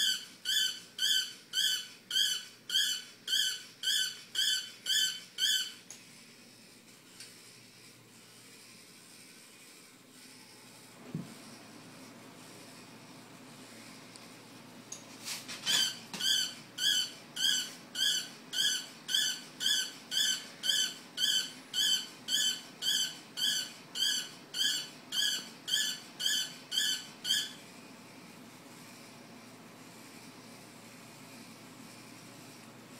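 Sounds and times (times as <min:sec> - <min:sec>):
toy robot dog electronic yaps: 0:00.0 - 0:05.8, 0:15.7 - 0:27.6.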